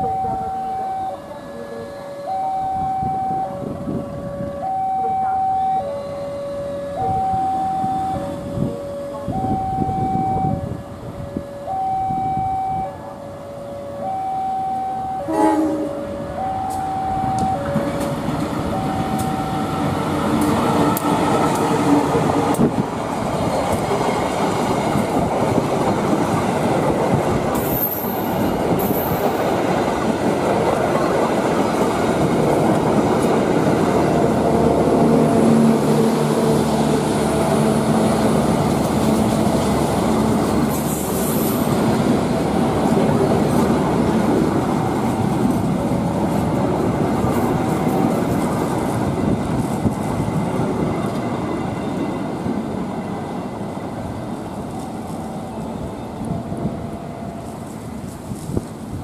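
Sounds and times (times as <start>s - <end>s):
level-crossing alarm chiming: 0.0s - 10.8s, 11.6s - 13.0s, 13.6s - 15.4s, 16.2s - 20.0s
train engine rumbling: 0.0s - 59.0s
train horn blast: 14.0s - 18.1s.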